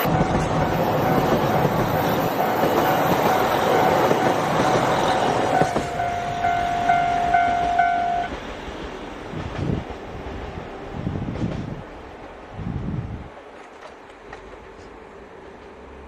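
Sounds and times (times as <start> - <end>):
high warning tone pulses: 0.0 - 8.4
train wheels clattering on rails: 0.0 - 12.4, 13.4 - 16.0.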